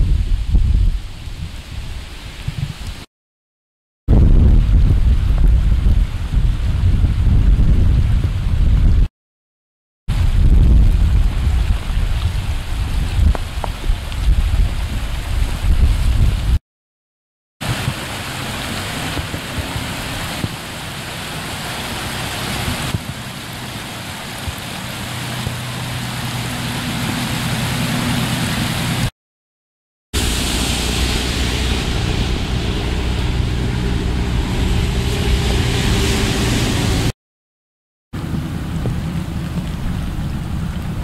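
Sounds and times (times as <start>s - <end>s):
heavy rain: 10.1s - 16.6s, 17.6s - 29.1s, 30.2s - 37.2s, 38.2s - 41.0s
rushing floodwater: 10.1s - 16.6s, 17.6s - 29.1s, 30.2s - 37.1s, 38.2s - 41.0s
low steady hum: 30.2s - 36.2s.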